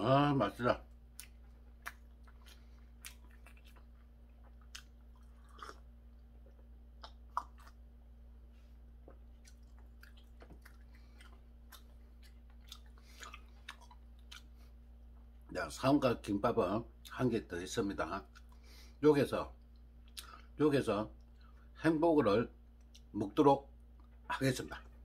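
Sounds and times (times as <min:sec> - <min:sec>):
faint steady hum: 0:00.0 - 0:25.0
quiet chewing: 0:00.8 - 0:15.5, 0:18.2 - 0:18.9, 0:19.6 - 0:20.6, 0:22.7 - 0:23.1, 0:23.8 - 0:25.0
mouth clicks and smacks: 0:01.1 - 0:05.8, 0:06.5 - 0:07.8, 0:09.0 - 0:14.5, 0:19.6 - 0:20.5.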